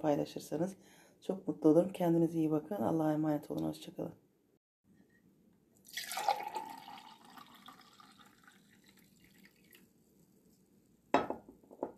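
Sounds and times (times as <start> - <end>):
tea pouring into a glass: 5.8 - 9.9
water trickling and dripping: 6.0 - 9.9.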